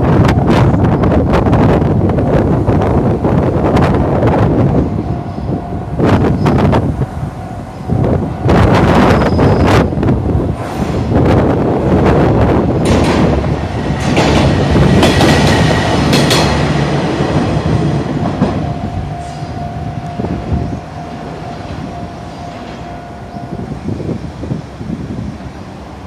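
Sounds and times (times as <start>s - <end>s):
diesel railcar engine rumbling: 0.0s - 26.0s
train wheels clicking over rail joints: 12.6s - 18.8s
steady tone: 15.6s - 25.3s.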